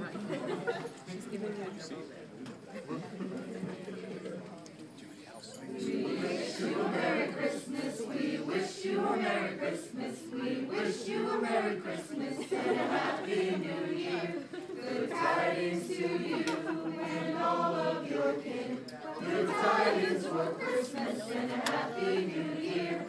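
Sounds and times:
group singing a carol: 5.7 - 23.0.

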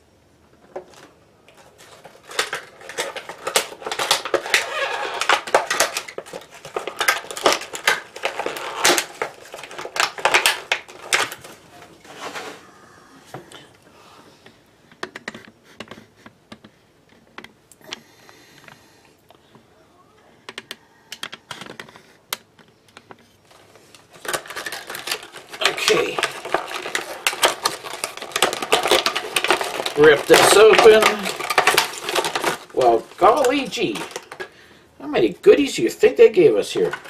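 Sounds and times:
plastic packaging crackling: 0.6 - 12.7, 21.1 - 37.0.

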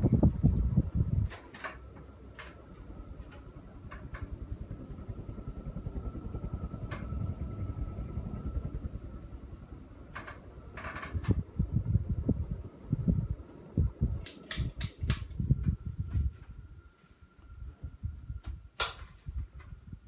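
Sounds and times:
ceiling fan running: 0.0 - 20.0
faint steady whine: 0.0 - 20.0
sharp clicks: 14.2 - 15.4.

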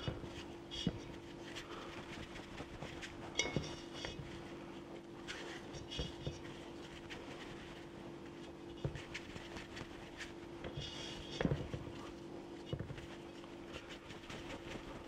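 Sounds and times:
hands rolling dough: 0.0 - 15.0.

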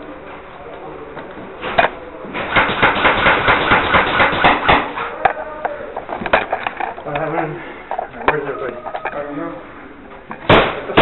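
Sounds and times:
airsoft gun shots: 2.4 - 5.0, 10.4 - 11.0.

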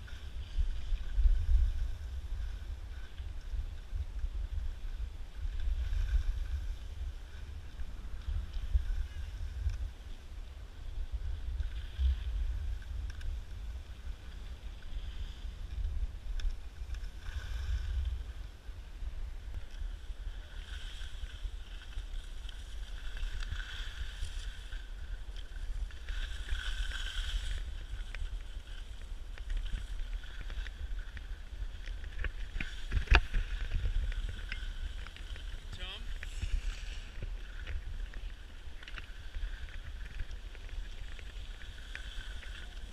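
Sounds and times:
wind rumbling on microphone: 0.0 - 42.9.

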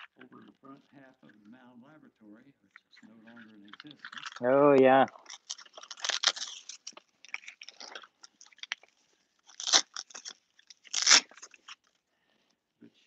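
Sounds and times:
velcro ripping tears: 3.7 - 12.0
velcro crackling: 3.8 - 12.0.

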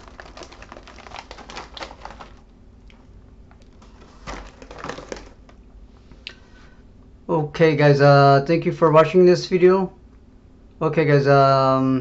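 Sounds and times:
plastic snack bag crinkling: 0.0 - 5.7.

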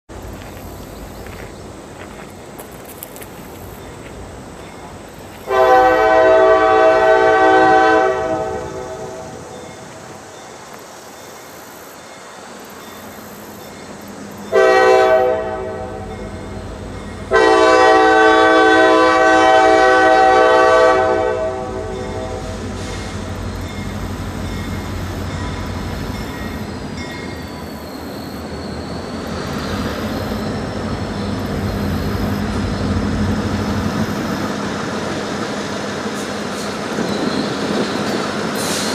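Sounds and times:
locomotive rumble: 0.1 - 10.8, 12.3 - 38.9
locomotive air horn blasts: 5.5 - 9.5, 14.5 - 16.1, 17.3 - 23.3.

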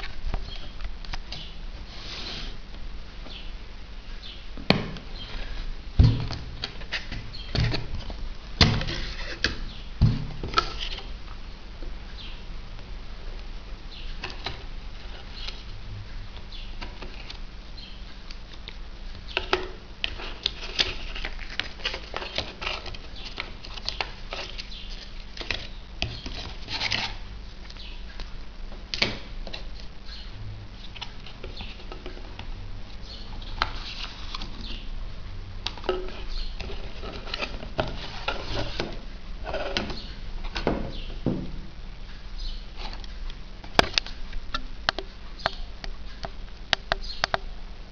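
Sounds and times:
cardboard and paper rustling: 20.0 - 27.2
low hum: 27.2 - 39.5.

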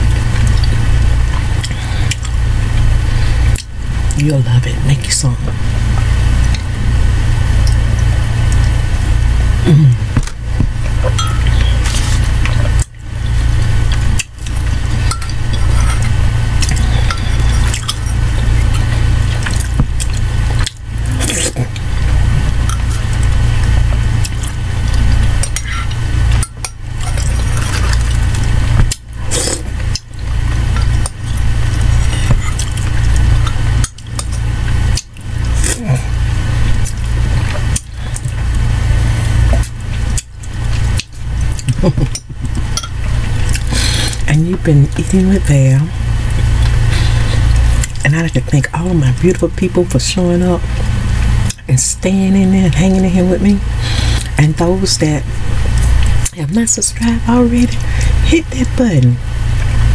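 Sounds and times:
steady low hum: 0.0 - 59.9
soup being sipped: 29.3 - 30.0, 43.4 - 44.3, 53.8 - 54.4.

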